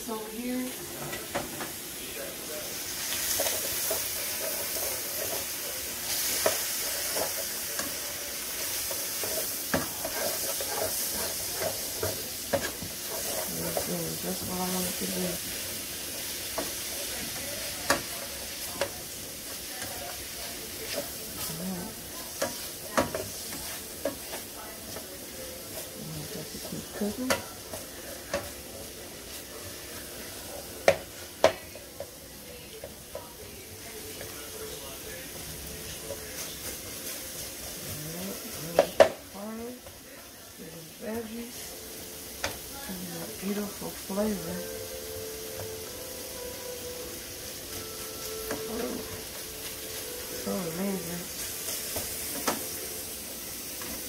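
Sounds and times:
food sizzling in a frying pan: 0.0s - 54.0s
spatula scraping and knocking pan: 3.0s - 19.0s, 19.6s - 29.5s.

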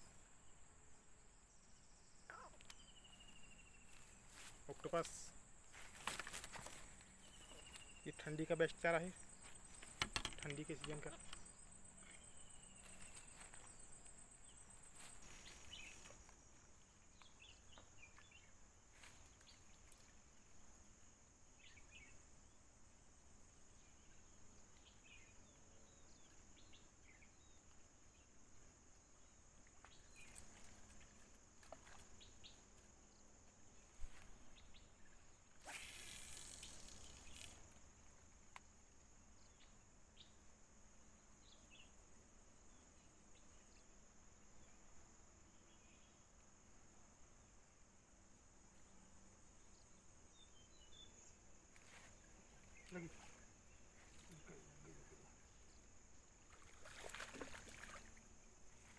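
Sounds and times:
high insect buzz: 0.0s - 58.9s
short bird chirps: 35.6s - 37.6s.

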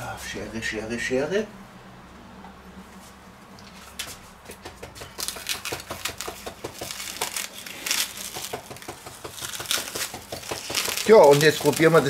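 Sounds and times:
scissors snipping plastic film: 3.9s - 12.0s
plastic film crinkling: 5.0s - 12.0s.

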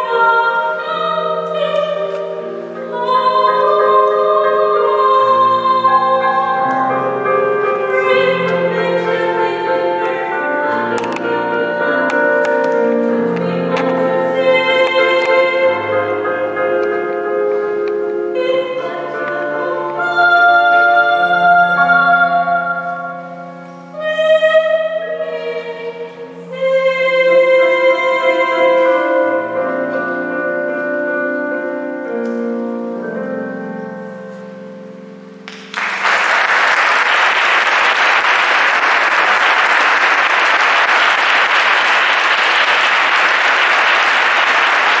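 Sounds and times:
women's choir singing: 0.0s - 16.2s, 18.4s - 23.0s
piano: 0.0s - 45.0s
audience applause: 35.5s - 45.0s.

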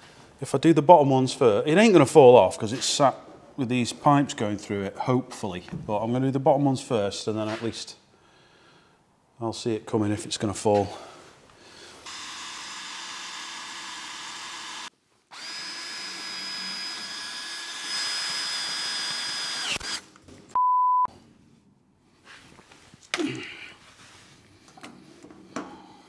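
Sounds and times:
power drill running: 12.0s - 20.1s
short loud beep: 20.6s - 21.1s.

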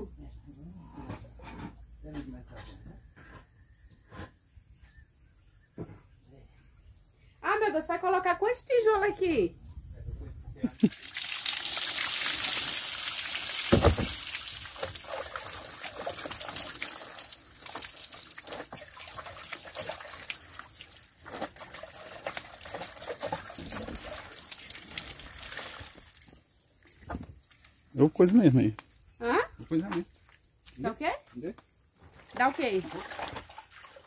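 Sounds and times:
tap water running and splashing: 10.8s - 29.4s.

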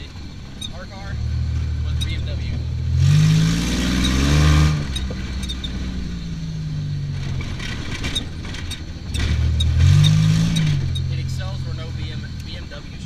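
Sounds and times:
off-road vehicle engine accelerating: 0.0s - 13.0s
knocks and rattles: 7.2s - 11.1s.

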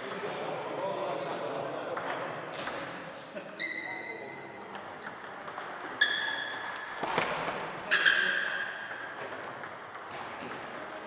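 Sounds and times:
table tennis ball clicking: 4.6s - 7.3s, 8.4s - 11.0s.

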